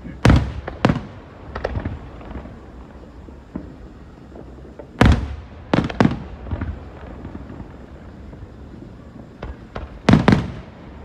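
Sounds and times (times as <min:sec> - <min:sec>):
faint fireworks pops: 0:00.0 - 0:11.0
fireworks booming overhead: 0:00.0 - 0:11.0.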